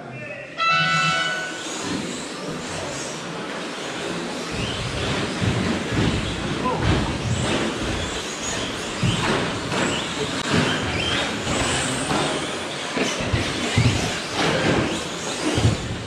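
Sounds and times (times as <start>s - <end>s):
tyre and chassis noise: 0.6s - 16.0s
trucks knocking and thudding: 3.7s - 16.0s.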